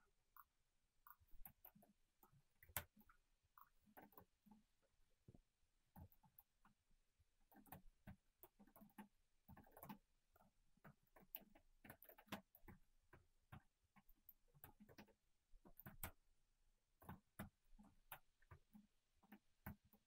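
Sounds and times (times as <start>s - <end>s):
keyboard typing: 7.5s - 10.1s, 10.8s - 12.8s, 13.5s - 16.2s.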